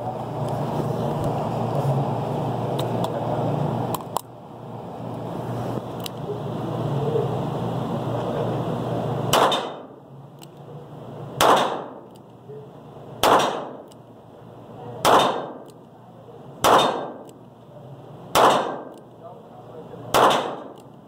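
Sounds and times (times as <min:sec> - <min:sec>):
revolver gunshots with echo: 0:09.3 - 0:10.0, 0:11.4 - 0:12.1, 0:13.2 - 0:13.9, 0:15.0 - 0:15.7, 0:16.6 - 0:17.3, 0:18.3 - 0:19.0, 0:20.1 - 0:20.8.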